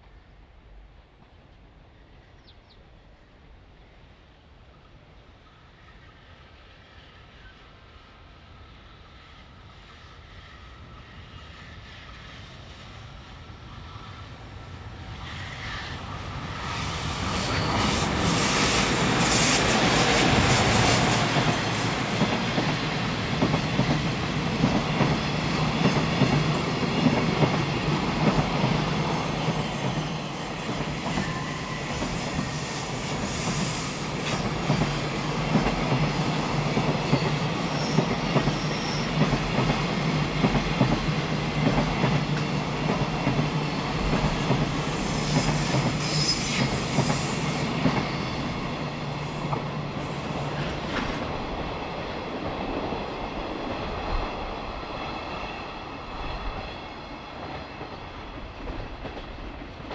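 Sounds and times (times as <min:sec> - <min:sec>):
electric locomotive passing: 0:04.4 - 0:59.9
faint high wheel squeal: 0:29.2 - 0:33.5, 0:36.6 - 0:39.2, 0:46.0 - 0:46.9, 0:48.1 - 0:51.2.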